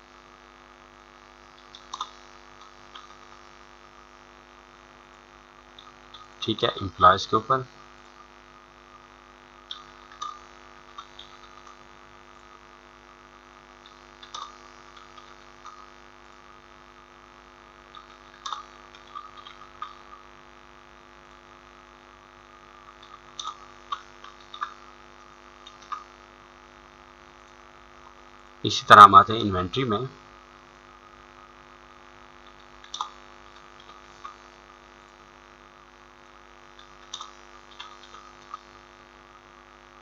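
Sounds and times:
electrical mains hum: 0.0 - 40.0
computer mouse clicks: 1.6 - 3.2, 9.7 - 11.8, 13.8 - 15.9, 17.9 - 20.1, 22.9 - 24.8, 25.6 - 26.1, 32.4 - 33.2, 33.8 - 34.4, 36.8 - 38.7.

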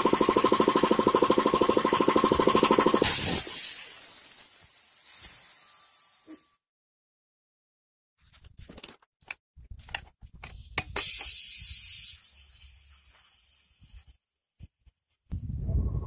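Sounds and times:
compressed air hissing: 3.0 - 6.4, 11.0 - 14.2.

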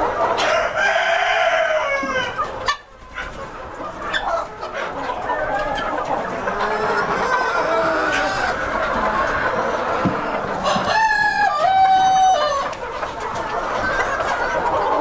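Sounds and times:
chickens clucking: 0.0 - 15.0
rooster crowing: 10.6 - 12.6.

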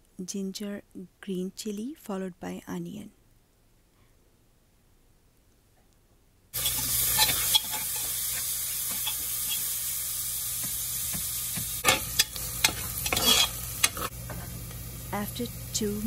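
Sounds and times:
vegetables sizzling in hot oil: 6.5 - 16.0
spoon stirring: 6.6 - 9.6, 10.6 - 14.1
spoon scraping and knocking pot: 6.6 - 9.7, 10.6 - 14.5.

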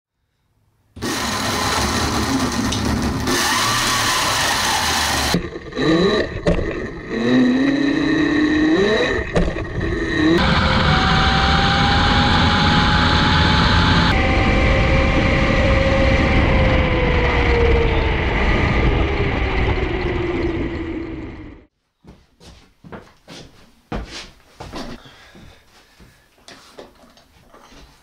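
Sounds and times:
electric motor whining: 1.0 - 21.6
wind and tyre noise: 3.2 - 21.7.

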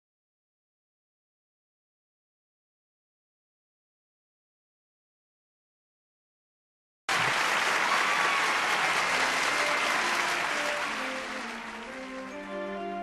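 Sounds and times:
applause: 7.1 - 12.8
gentle instrumental music: 9.0 - 13.0.

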